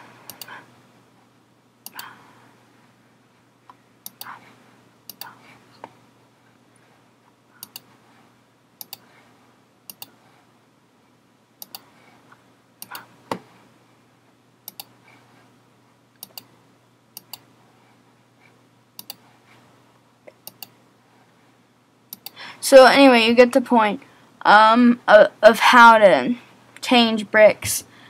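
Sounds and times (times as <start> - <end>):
computer mouse clicks: 0.3 - 0.6, 1.8 - 2.1, 4.0 - 4.4, 5.1 - 5.4, 7.6 - 7.9, 8.8 - 9.1, 9.9 - 10.2, 11.6 - 11.9, 12.8 - 13.1, 14.7 - 15.0, 16.2 - 16.5, 17.2 - 17.5, 19.0 - 19.3, 20.3 - 20.8, 22.1 - 22.4.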